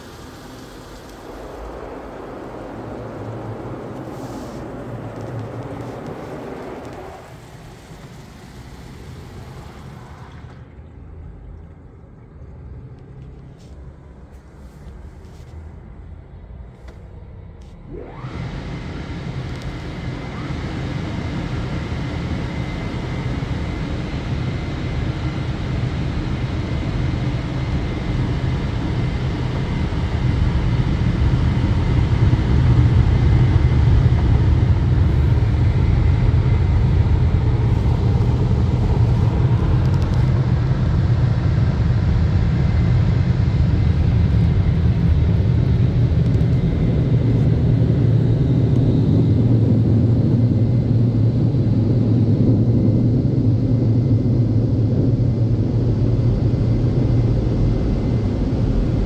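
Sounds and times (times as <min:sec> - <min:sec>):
machine whine: 0:00.0 - 0:11.2, 0:15.0 - 0:59.0
muffled rumble: 0:00.0 - 0:59.0
water spray on car body: 0:03.9 - 0:04.7.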